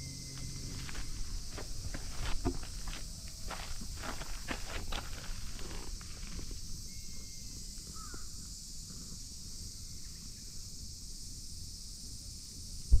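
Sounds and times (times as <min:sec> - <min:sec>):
low rumble: 0:00.0 - 0:04.1
steady high hiss: 0:00.0 - 0:13.0.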